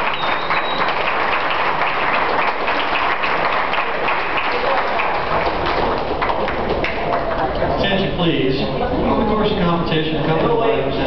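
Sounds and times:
crowd clapping: 0:00.0 - 0:07.8.

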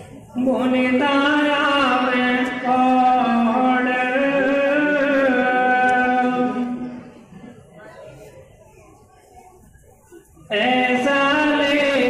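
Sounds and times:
person singing devotional song: 0:00.3 - 0:07.0, 0:10.5 - 0:12.0.

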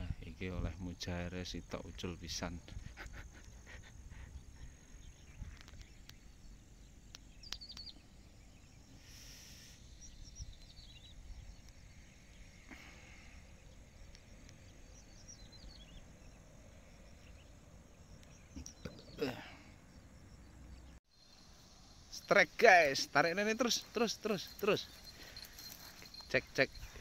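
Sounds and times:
low rumble of wind: 0:00.0 - 0:08.9, 0:09.9 - 0:22.1
high insect drone: 0:08.6 - 0:17.5, 0:21.1 - 0:27.0.

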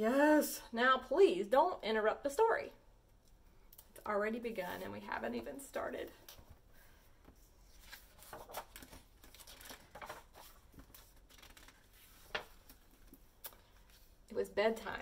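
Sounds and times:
book pages turning: 0:07.3 - 0:14.2.

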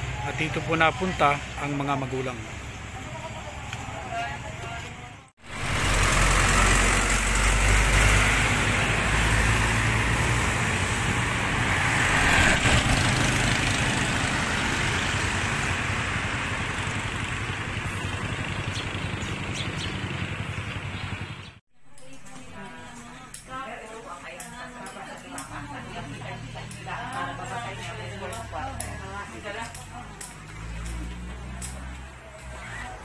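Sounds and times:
vehicle engine running: 0:00.0 - 0:21.6
street noise: 0:00.0 - 0:33.0.

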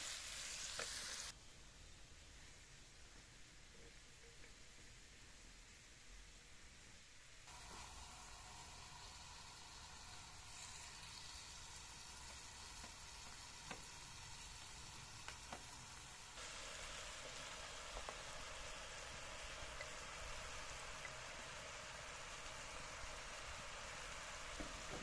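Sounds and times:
chicken sizzling in a pan: 0:00.0 - 0:01.4, 0:07.5 - 0:25.0.

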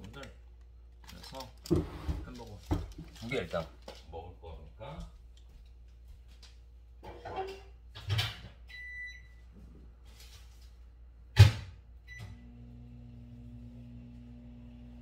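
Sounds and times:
microwave keypad beep: 0:08.7 - 0:09.3
microwave humming: 0:12.0 - 0:15.0.

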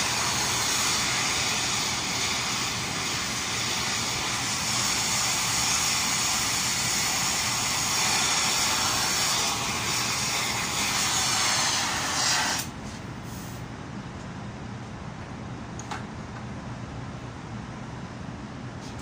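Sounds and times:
gas torch flame hissing: 0:00.0 - 0:13.6.

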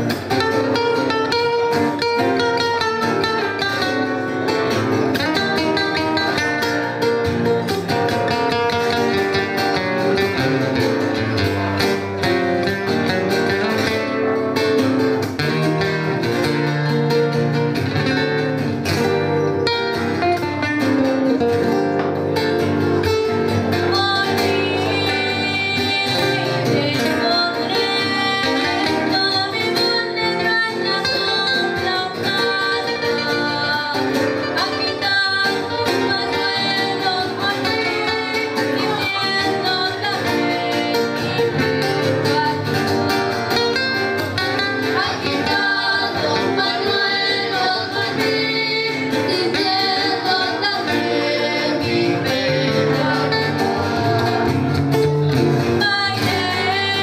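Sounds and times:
acoustic guitars strumming: 0:00.0 - 0:57.0
girl singing into microphone: 0:23.6 - 0:54.5, 0:55.6 - 0:57.0.

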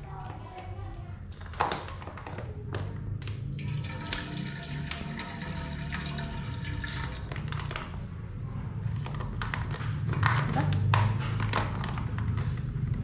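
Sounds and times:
oil pouring into wok: 0:03.6 - 0:07.7.

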